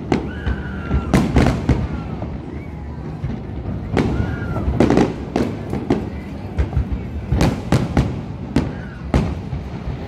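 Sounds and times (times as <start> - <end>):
continuous low rumble: 0.0 - 10.0
fireworks sharp bangs: 0.0 - 10.0.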